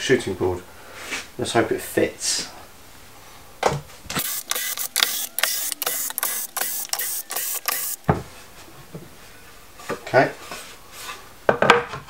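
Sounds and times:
cordless drill pulsing: 0:04.2 - 0:08.0.

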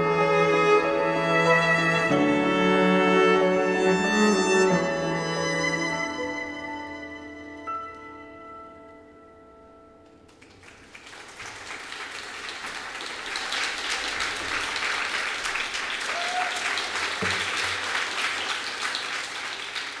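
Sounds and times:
audience applauding: 0:10.3 - 0:20.0.

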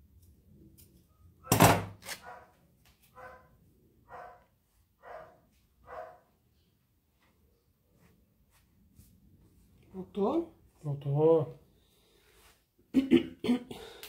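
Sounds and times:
dog barking: 0:02.2 - 0:06.3.

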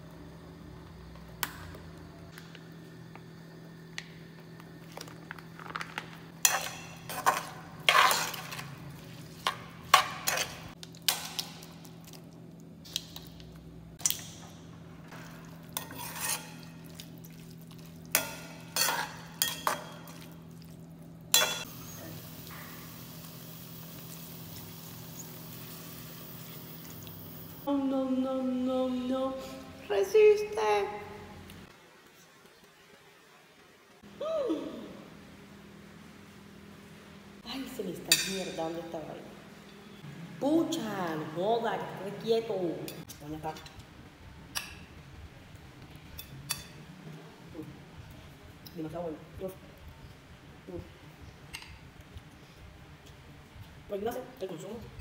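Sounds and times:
utensil scraping metal pot: 0:15.7 - 0:16.7.

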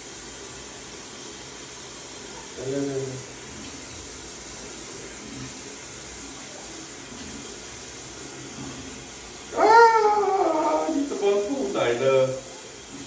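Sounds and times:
tap water running into a sink: 0:00.0 - 0:13.0.

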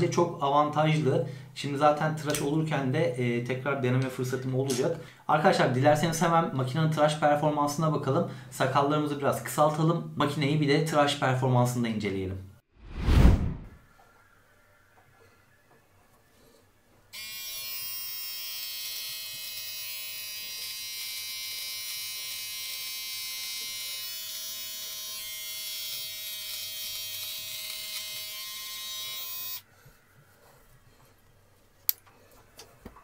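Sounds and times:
beard trimmer buzzing: 0:17.2 - 0:29.6.

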